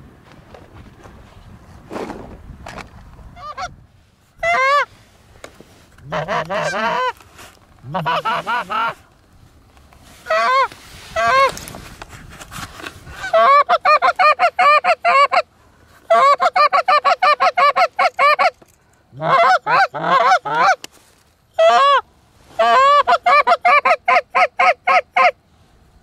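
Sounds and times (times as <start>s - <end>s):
goose call honks and clucks: 3.4s - 3.8s, 4.4s - 4.9s, 6.0s - 7.2s, 7.8s - 9.1s, 10.2s - 11.6s, 13.2s - 20.9s, 21.5s - 25.4s.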